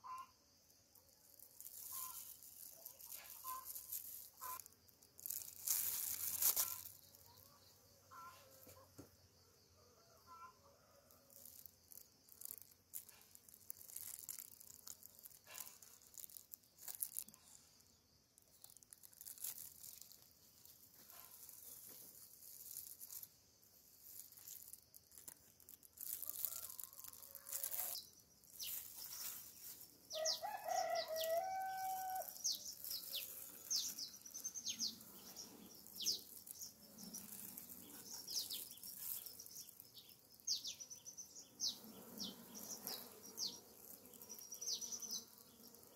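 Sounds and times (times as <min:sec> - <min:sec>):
handling rustles and crackles: 0:01.2 - 0:07.5, 0:11.2 - 0:40.8
small birds chirping: 0:01.2 - 0:09.1, 0:11.4 - 0:45.9
faint hum of bees: 0:06.6 - 0:18.9, 0:19.6 - 0:45.9
rooster crowing: 0:30.1 - 0:32.4.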